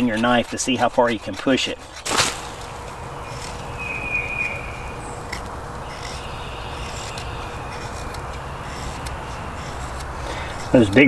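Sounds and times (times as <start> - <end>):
knife shaving wood: 0.0 - 11.0
outdoor background: 0.0 - 11.0
faint high chirp: 3.7 - 5.2.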